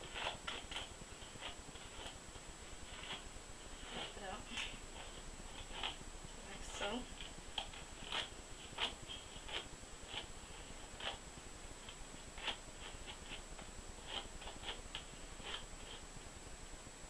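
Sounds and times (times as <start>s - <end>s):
hairbrush stroking through hair: 0.0s - 11.2s.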